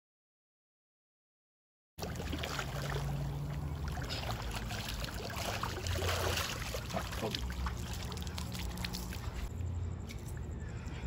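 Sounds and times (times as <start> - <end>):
pool water sloshing and splashing: 2.0 - 9.5.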